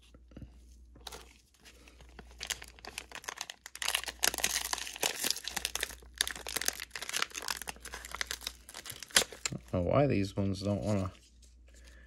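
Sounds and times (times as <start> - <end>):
plastic wrapper crinkling: 1.0 - 9.8.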